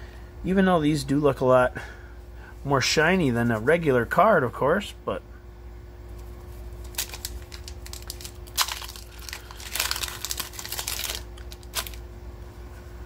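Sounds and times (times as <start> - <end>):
foil wrapper crackling: 6.4 - 12.0.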